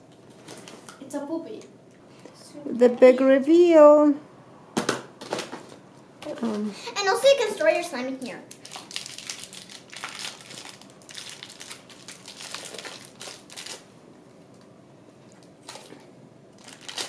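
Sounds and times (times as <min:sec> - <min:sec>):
plastic wrapping crinkling: 0:08.5 - 0:13.9, 0:15.3 - 0:17.0.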